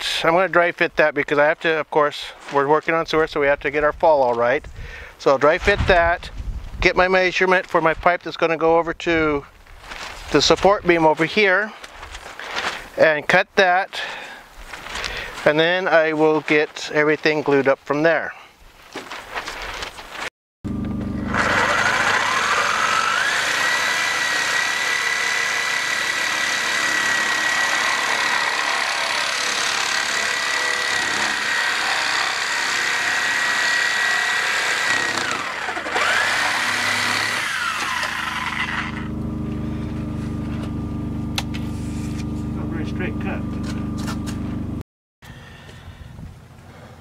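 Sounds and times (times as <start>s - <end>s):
reciprocating saw cutting plastic pipe: 20.8s - 39.2s.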